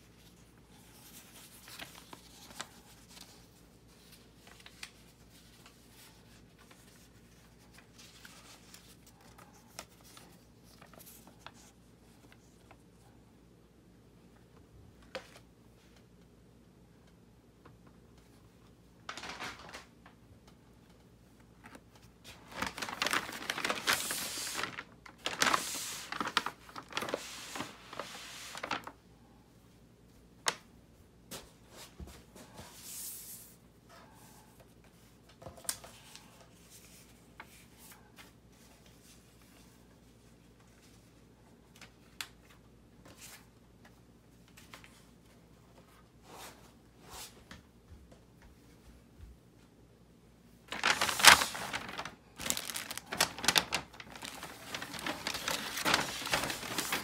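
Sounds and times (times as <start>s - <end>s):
paper bag rustling: 19.1s - 19.9s, 21.6s - 29.0s, 50.7s - 57.0s.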